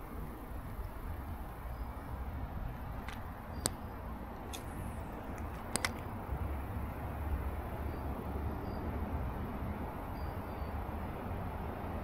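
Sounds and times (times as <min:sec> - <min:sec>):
low outdoor rumble: 0:00.0 - 0:12.0
short light clicks: 0:05.3 - 0:06.0.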